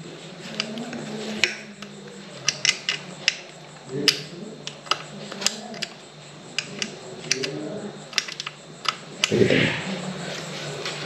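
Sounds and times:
metal clicks and taps: 0:01.4 - 0:06.0, 0:06.6 - 0:07.5, 0:08.1 - 0:09.4.

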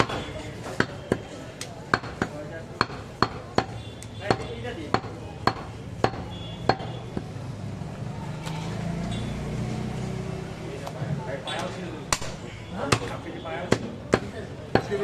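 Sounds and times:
cleaver chopping meat on wood: 0:00.0 - 0:01.3, 0:01.9 - 0:07.3, 0:12.1 - 0:15.0.

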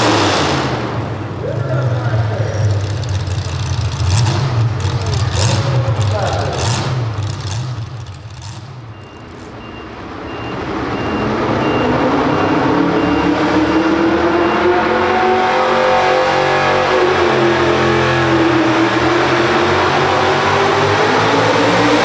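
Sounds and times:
truck engine revving: 0:00.0 - 0:22.0
repeated electronic beep: 0:08.9 - 0:15.4.

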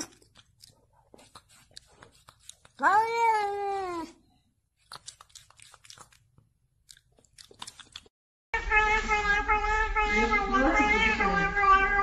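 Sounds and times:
cat meowing: 0:02.8 - 0:04.1, 0:08.6 - 0:12.0
loud wavering cat call: 0:08.6 - 0:12.0.

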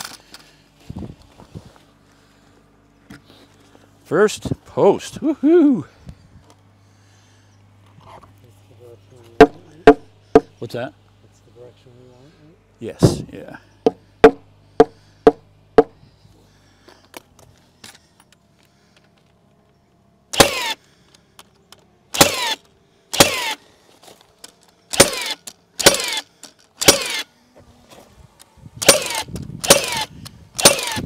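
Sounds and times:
sharp knocks: 0:09.4 - 0:10.5, 0:13.8 - 0:16.0
power driver bursts: 0:20.3 - 0:21.5, 0:22.1 - 0:23.8, 0:24.4 - 0:27.4, 0:28.8 - 0:31.0.

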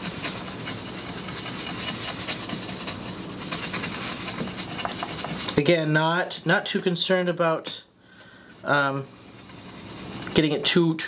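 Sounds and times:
blending tool rubbing on cardstock: 0:00.0 - 0:05.8, 0:08.5 - 0:11.0.

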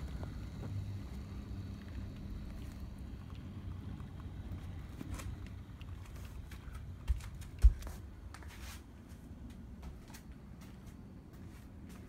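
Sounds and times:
model train cars rumbling: 0:00.0 - 0:07.1.

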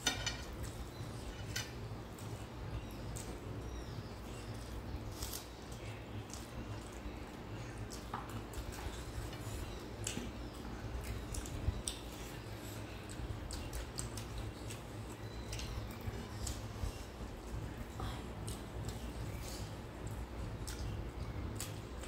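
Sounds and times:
low steady hum: 0:00.0 - 0:22.0
chewing and lip smacks: 0:04.6 - 0:22.0.

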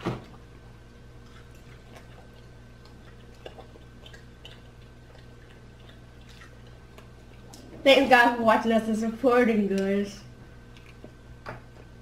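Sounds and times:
low steady hum: 0:00.0 - 0:12.0
mouth clicks and smacks chewing: 0:01.2 - 0:07.7, 0:10.7 - 0:12.0.

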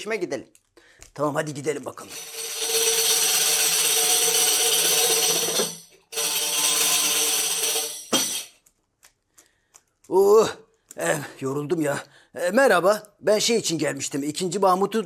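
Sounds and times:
tambourine jingling: 0:02.1 - 0:08.6.

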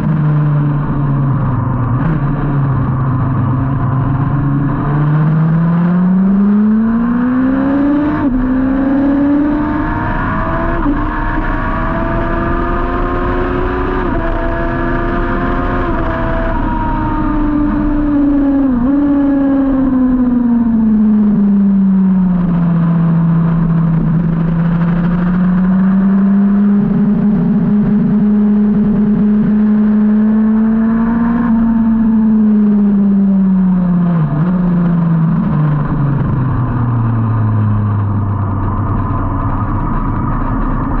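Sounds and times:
motorcycle engine revving: 0:00.0 - 0:41.0
wind rush: 0:34.3 - 0:41.0.

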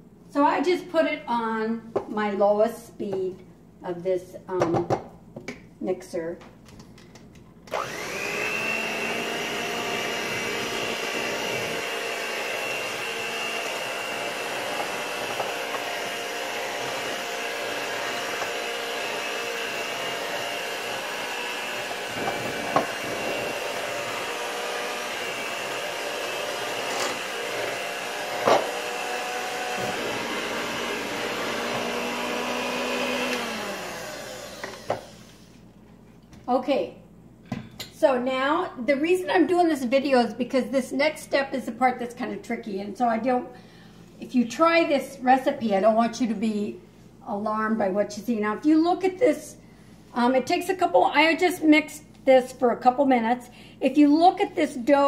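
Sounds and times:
electric mixer running: 0:07.7 - 0:35.5.

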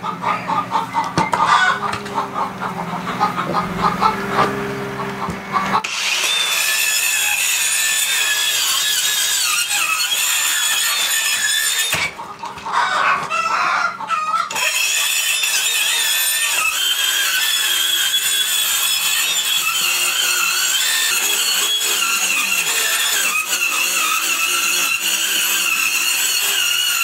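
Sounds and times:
chickens clucking: 0:00.0 - 0:05.9, 0:12.0 - 0:14.6
circular saw cutting wood: 0:00.0 - 0:27.0.

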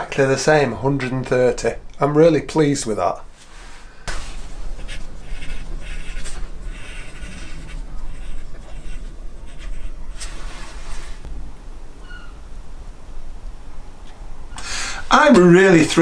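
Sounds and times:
steady low hum: 0:00.0 - 0:16.0
pencil scratching on paper: 0:04.1 - 0:11.3.

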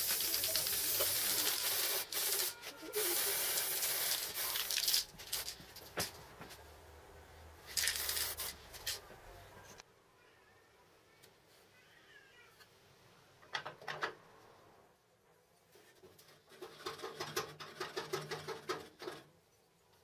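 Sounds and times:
spray can hissing: 0:00.0 - 0:05.6, 0:07.7 - 0:09.0.

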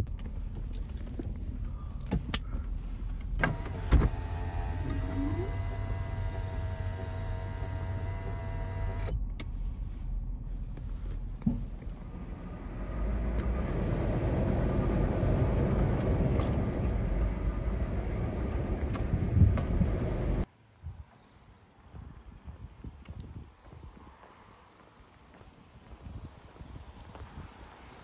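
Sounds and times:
car engine and tyres rumbling: 0:00.0 - 0:20.5
road and wind noise: 0:00.0 - 0:28.0.

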